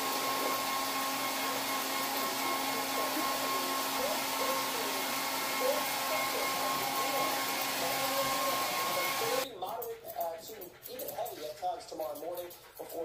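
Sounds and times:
electric motor whining: 0:00.0 - 0:09.4
faint voices: 0:00.0 - 0:13.0.

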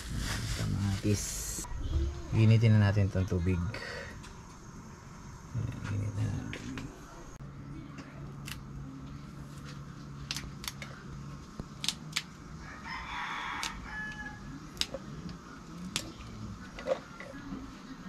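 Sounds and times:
beans snapping by hand: 0:10.2 - 0:10.9, 0:11.5 - 0:12.4, 0:13.6 - 0:16.2
rooster crowing: 0:12.5 - 0:14.7.

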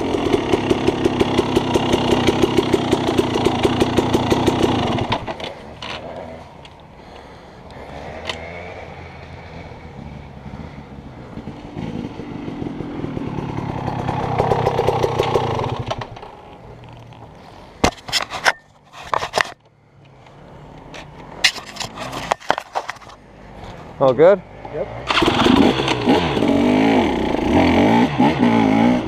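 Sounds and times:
dirt bike engine revving: 0:00.0 - 0:06.5, 0:07.7 - 0:16.2, 0:24.5 - 0:29.0.

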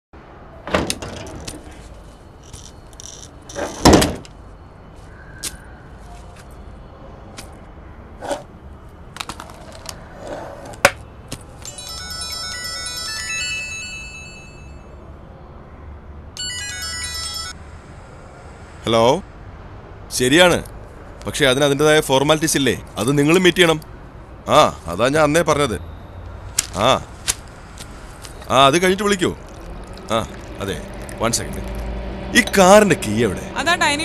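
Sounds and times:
drawer opening: 0:00.7 - 0:01.8, 0:03.0 - 0:04.3, 0:08.2 - 0:08.5, 0:09.3 - 0:10.9
mobile phone ringtone: 0:11.6 - 0:15.0, 0:16.4 - 0:17.6.

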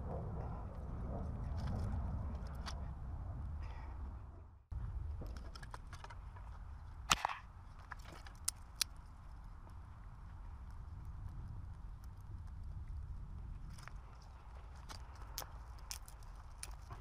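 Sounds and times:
low rumble: 0:00.0 - 0:05.6
campfire crackling and popping: 0:06.5 - 0:17.0.

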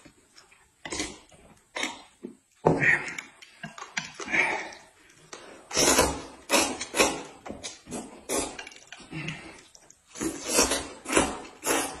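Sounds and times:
noodles being slurped: 0:05.7 - 0:12.0.

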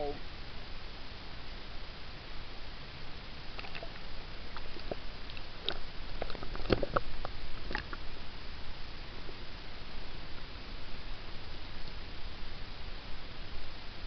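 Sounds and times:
steady hiss: 0:00.0 - 0:14.0
pool water splashing: 0:03.5 - 0:07.0.

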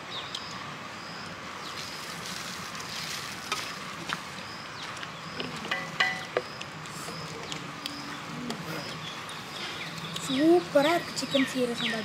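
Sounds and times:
steady hiss: 0:00.0 - 0:07.4.

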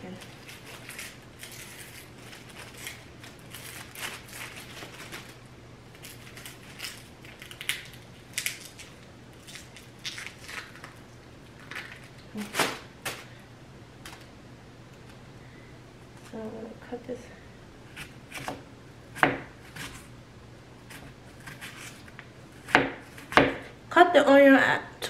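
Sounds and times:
onion skin crackling: 0:00.0 - 0:13.3.

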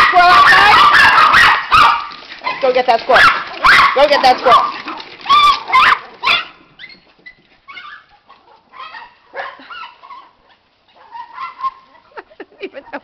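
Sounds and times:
dog whining: 0:04.6 - 0:08.1.

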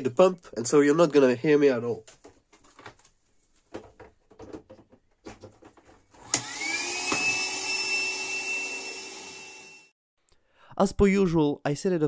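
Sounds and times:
vacuum cleaner motor whine: 0:06.2 - 0:09.9.

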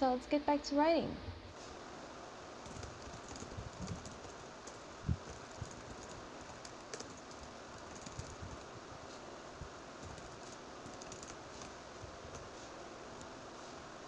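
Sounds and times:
background hiss: 0:00.0 - 0:14.0
typing on laptop keyboard: 0:02.6 - 0:08.8, 0:10.0 - 0:12.5.

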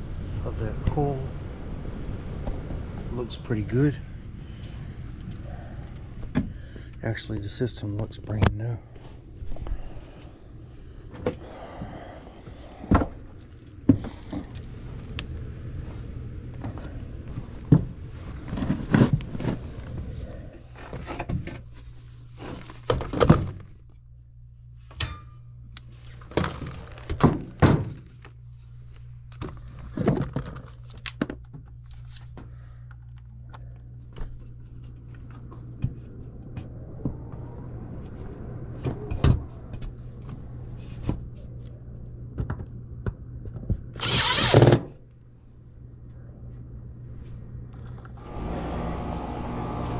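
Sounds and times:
steady low hum: 0:00.0 - 0:49.9
thunks and knocks of movement: 0:16.5 - 0:21.8, 0:29.4 - 0:31.7.

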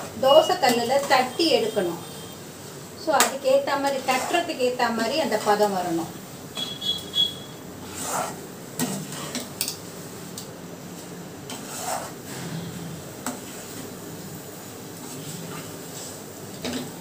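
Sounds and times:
spoon scraping in a pan: 0:00.4 - 0:01.7, 0:03.8 - 0:05.7, 0:06.6 - 0:09.6, 0:11.5 - 0:13.8.

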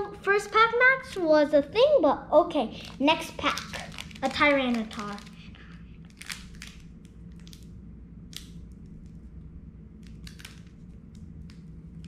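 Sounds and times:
faint steady hum: 0:00.0 - 0:12.0
foil wrapper crinkling: 0:02.8 - 0:07.7, 0:10.0 - 0:10.8.

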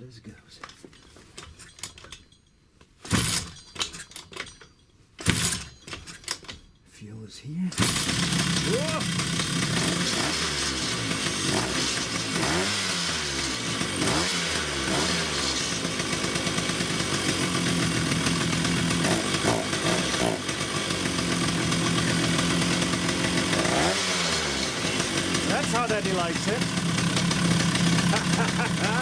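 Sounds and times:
two-stroke scooter engine running: 0:07.8 - 0:29.0.

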